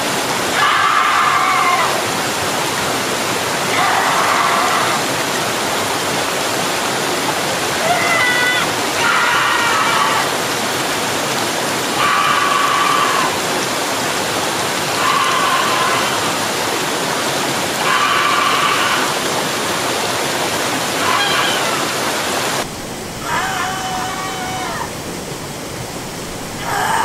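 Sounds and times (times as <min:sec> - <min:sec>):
waterfall rushing: 0:00.0 - 0:27.0
person screaming: 0:00.5 - 0:02.0, 0:03.7 - 0:05.1, 0:07.8 - 0:10.4, 0:12.0 - 0:13.4, 0:15.0 - 0:16.4, 0:17.8 - 0:19.2, 0:21.0 - 0:21.9, 0:23.2 - 0:24.9, 0:26.6 - 0:27.0.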